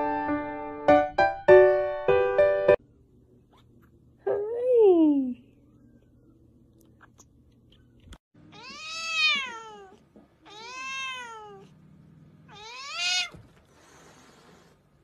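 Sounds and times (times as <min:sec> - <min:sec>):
cat meowing: 0:08.5 - 0:11.7, 0:12.5 - 0:13.4.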